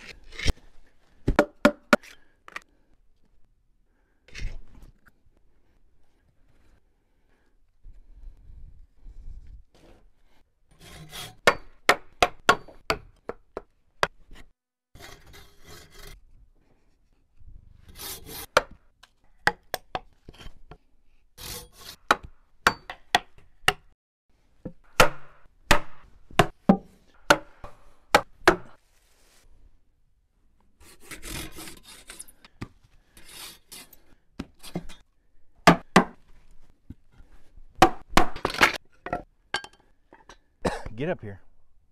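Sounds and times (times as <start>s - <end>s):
rasping scrapes on wood: 30.8s - 32.4s.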